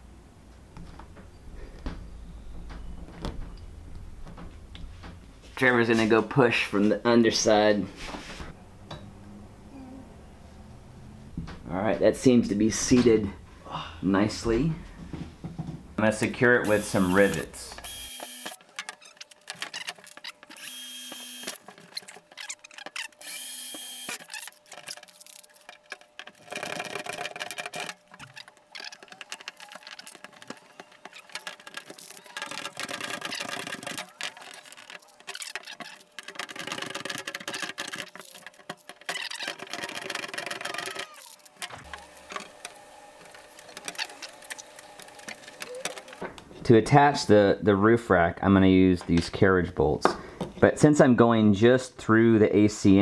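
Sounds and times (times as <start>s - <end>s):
power drill drilling metal panel: 16.7s - 18.6s, 20.5s - 21.6s, 23.2s - 24.6s.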